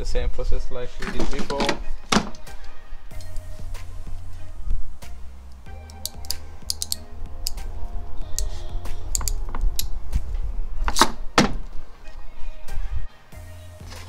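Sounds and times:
background music: 0.0s - 14.0s
crimping pliers clicking: 3.1s - 3.5s, 5.5s - 7.6s, 8.3s - 10.0s.

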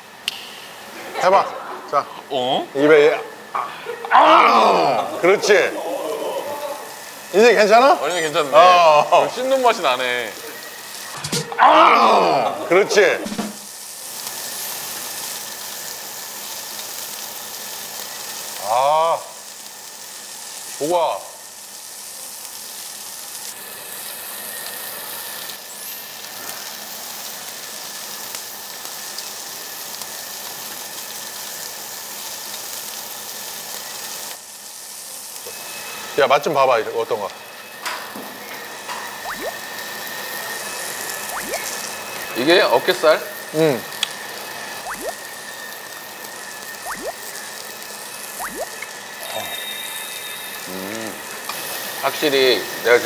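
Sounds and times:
meat sizzling on grill plate: 0.0s - 53.0s
cartoon bloop blips: 39.2s - 39.6s, 41.3s - 41.8s, 44.8s - 45.2s, 46.8s - 47.2s, 48.4s - 48.9s.

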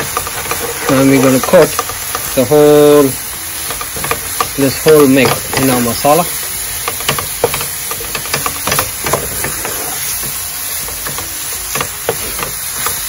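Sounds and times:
spatula clicking against pan: 0.0s - 2.4s, 6.8s - 9.6s, 10.2s - 13.0s
food sizzling: 0.0s - 13.0s
spatula scraping frying pan: 0.0s - 13.0s.

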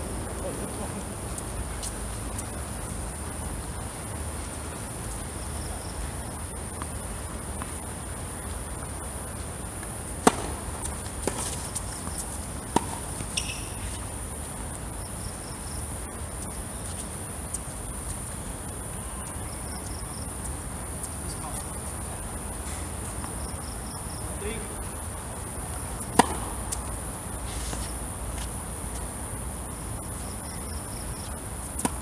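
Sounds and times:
crickets droning: 0.0s - 32.0s
tennis racket striking ball: 10.2s - 13.8s, 26.1s - 26.7s.

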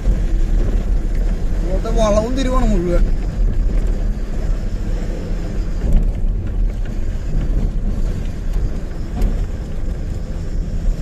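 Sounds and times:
truck diesel engine running: 0.0s - 11.0s
tyre and road noise: 0.0s - 11.0s.

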